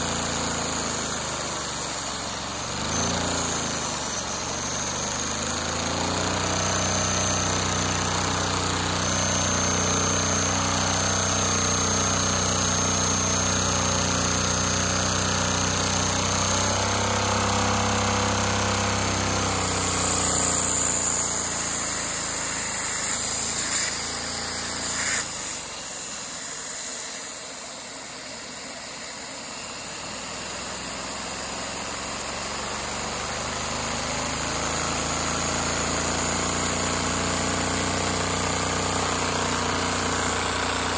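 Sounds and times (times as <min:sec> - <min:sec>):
vacuum engine running at high revs: 0:00.0 - 0:40.9.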